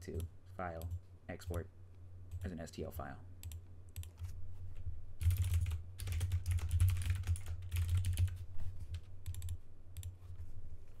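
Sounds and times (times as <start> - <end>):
steady low hum: 0.0 - 11.0
typing on computer keyboard: 5.2 - 8.4, 9.2 - 10.1.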